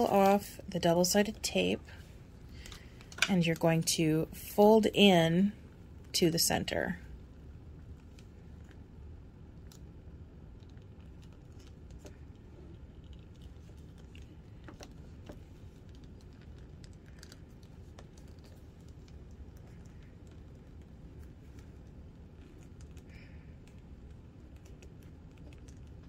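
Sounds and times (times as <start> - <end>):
low steady hum: 0.0 - 26.0
faint clicks and taps: 10.6 - 26.0.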